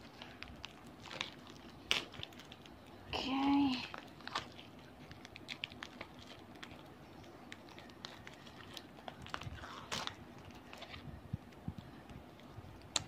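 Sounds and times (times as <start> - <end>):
plastic packaging crackling: 0.0 - 13.0
packaging rustle: 3.8 - 11.1.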